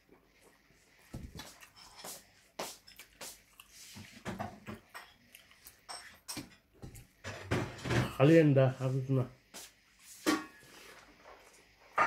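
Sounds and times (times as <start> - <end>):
person chewing food: 1.0 - 7.2.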